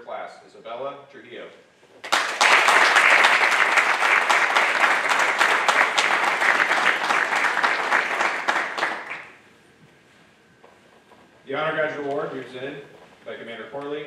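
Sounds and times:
audience applauding: 2.0 - 9.4.

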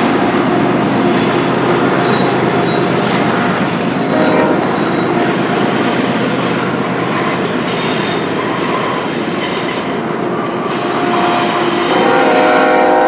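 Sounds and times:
train rattle: 0.0 - 13.0
train wheels rolling on rails: 0.0 - 13.0
faint high wheel squeal: 1.9 - 6.2, 7.0 - 13.0.

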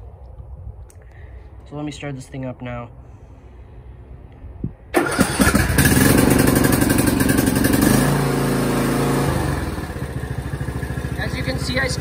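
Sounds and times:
riding mower engine running: 4.9 - 12.0.

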